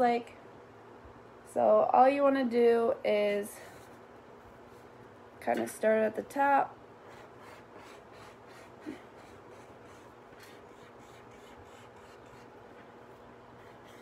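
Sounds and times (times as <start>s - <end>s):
marker pen scratching on paper: 7.1s - 12.9s, 13.6s - 14.0s.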